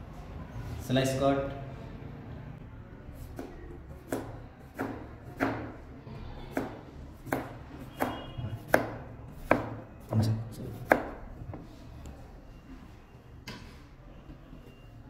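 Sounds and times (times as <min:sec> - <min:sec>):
knife slicing cucumber on board: 0:06.5 - 0:09.8.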